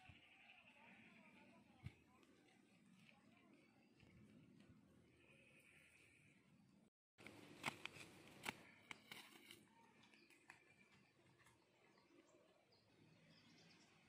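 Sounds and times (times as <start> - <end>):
footsteps on dry leaves and twigs: 7.2 - 10.1.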